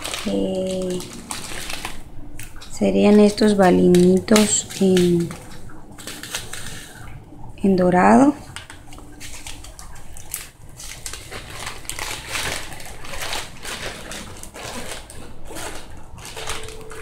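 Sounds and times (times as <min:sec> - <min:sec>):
plastic bag crinkling: 0:00.0 - 0:07.3, 0:08.4 - 0:17.0.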